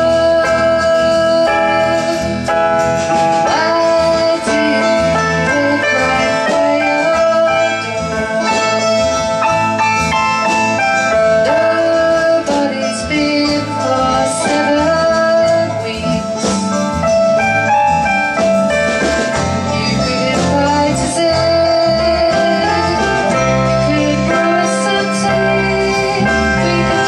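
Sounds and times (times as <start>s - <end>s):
woman singing folk song: 0.0s - 2.5s, 3.4s - 9.2s, 11.4s - 16.9s, 19.6s - 27.0s
accompanying musician: 0.0s - 27.0s
acoustic guitar: 0.0s - 27.0s.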